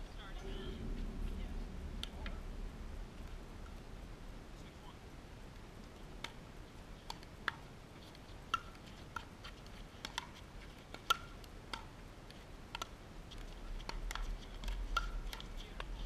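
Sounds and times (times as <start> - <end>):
paddles hitting a plastic ball: 7.0 - 16.0.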